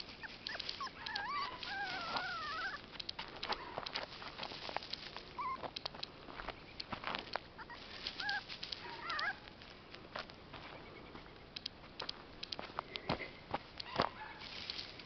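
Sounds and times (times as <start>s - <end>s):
puppy whimpering: 0.1s - 2.8s, 5.4s - 5.7s, 7.6s - 9.4s
footsteps on gravel: 0.6s - 15.0s.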